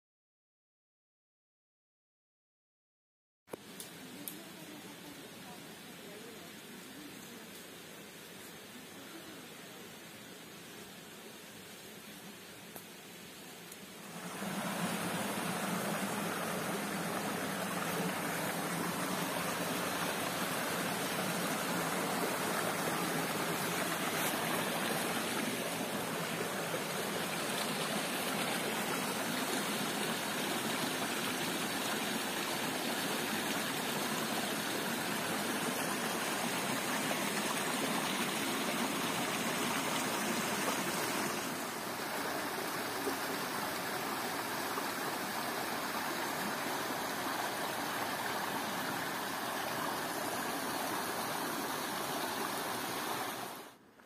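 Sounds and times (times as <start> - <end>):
stream splashing over rocks: 13.8 - 53.8.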